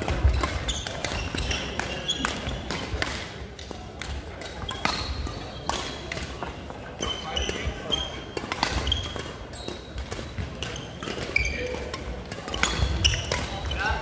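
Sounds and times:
racket hitting shuttlecock: 0:00.0 - 0:14.0
short high shoe squeaks: 0:00.6 - 0:02.7, 0:07.0 - 0:11.8.

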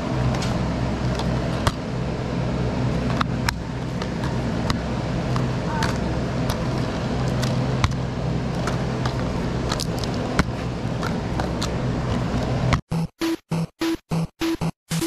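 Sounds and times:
low hum: 0:00.0 - 0:12.8
choppy electronic music beat: 0:12.9 - 0:15.0.

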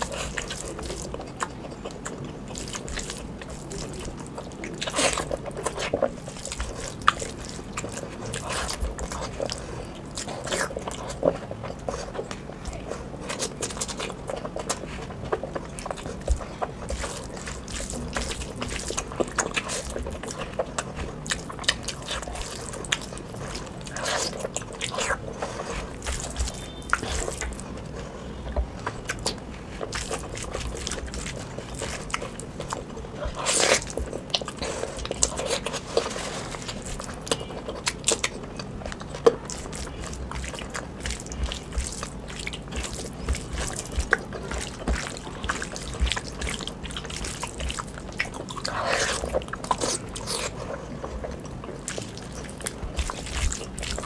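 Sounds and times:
chewing with mouth smacks: 0:00.0 - 0:54.0
hand squishing wet food: 0:00.0 - 0:54.0.

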